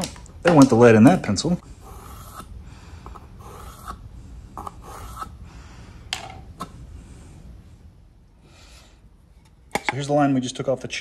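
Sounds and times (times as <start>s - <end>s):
pencil scraping along wood: 1.8s - 2.5s, 3.4s - 4.0s, 4.6s - 5.4s.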